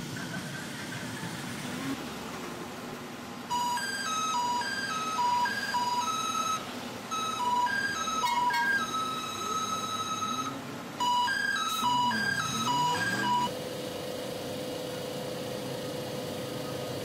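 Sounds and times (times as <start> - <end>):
train rumbling past: 0.0 - 3.6.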